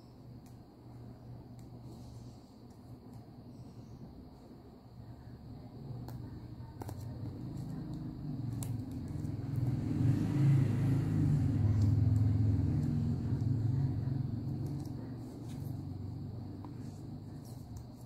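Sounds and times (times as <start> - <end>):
vehicle engine passing: 7.4 - 17.3.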